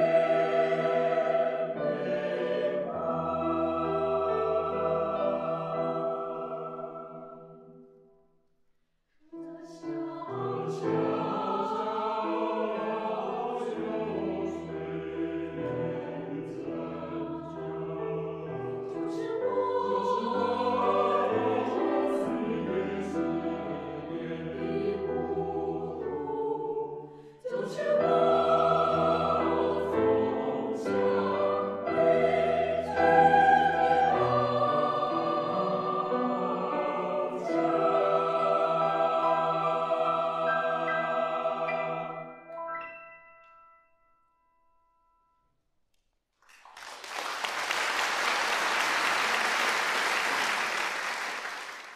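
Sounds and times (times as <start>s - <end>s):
mixed choir singing: 0.0s - 7.7s, 9.5s - 42.4s.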